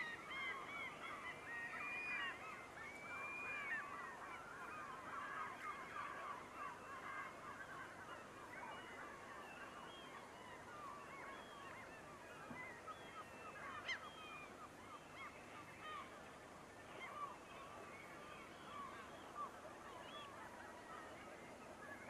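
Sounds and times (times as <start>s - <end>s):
distant waterfowl calling: 10.8s - 17.6s.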